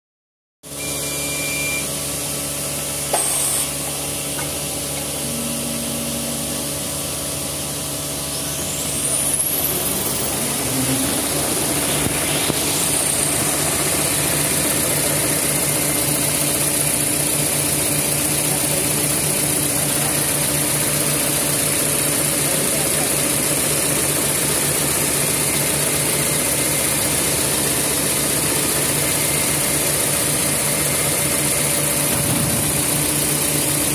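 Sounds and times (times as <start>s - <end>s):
factory machinery noise: 2.8s - 33.9s
drive motors whining: 3.0s - 21.8s
machine knock: 32.0s - 33.2s.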